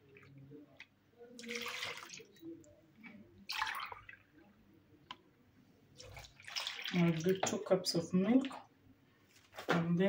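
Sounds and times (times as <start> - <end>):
milk pouring and splashing: 0.0 - 4.3, 6.0 - 7.7.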